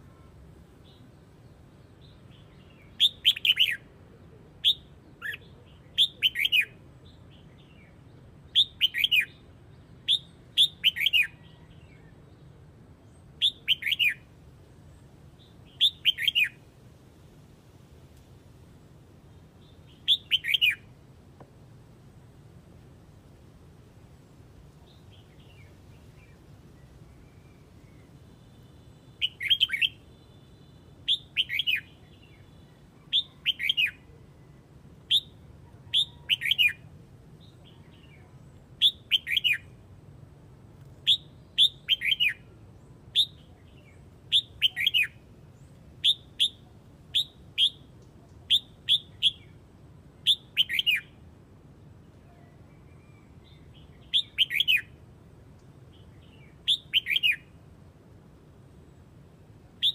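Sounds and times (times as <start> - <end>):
bird whistling calls: 4.6 - 6.8, 8.6 - 9.4, 10.1 - 11.7, 13.4 - 14.2, 15.7 - 16.6, 20.0 - 20.8, 29.2 - 30.0, 31.1 - 31.9, 35.1 - 36.8, 38.8 - 39.7, 41.0 - 42.4, 43.1 - 43.5, 44.3 - 45.2, 46.0 - 47.8, 48.5 - 49.5, 50.2 - 51.1, 52.7 - 55.0, 56.4 - 57.5.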